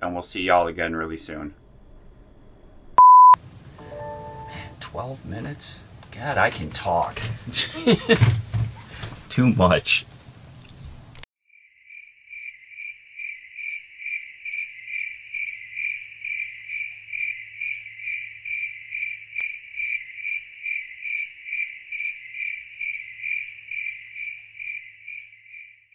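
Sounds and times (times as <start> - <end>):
cricket chirping: 11.5 - 25.9.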